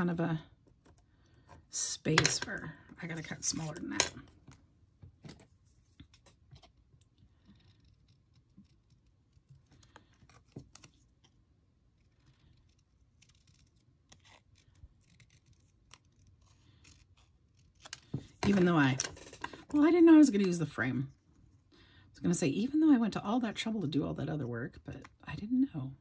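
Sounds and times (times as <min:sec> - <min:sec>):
scissors cutting paper: 0:12.0 - 0:19.6.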